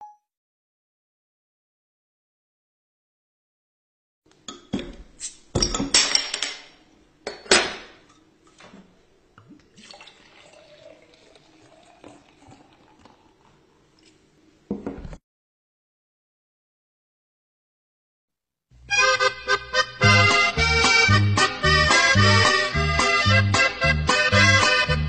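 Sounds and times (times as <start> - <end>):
beer pouring into glass: 9.4 - 13.9.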